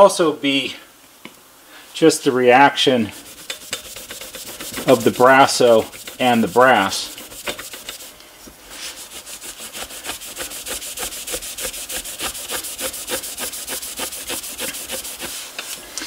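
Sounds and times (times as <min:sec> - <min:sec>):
cloth rubbing metal tube: 0:02.8 - 0:15.8.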